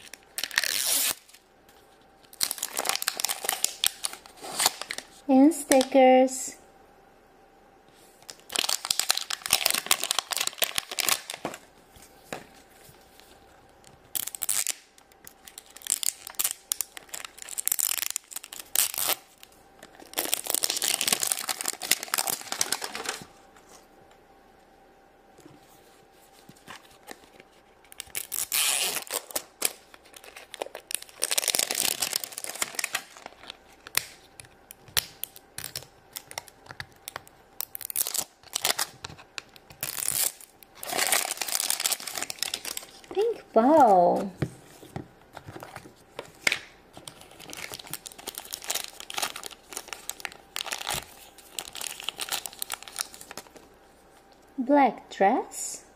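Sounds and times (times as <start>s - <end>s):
plastic wrapping crinkling: 0.0s - 5.9s, 8.2s - 23.8s, 26.1s - 54.4s.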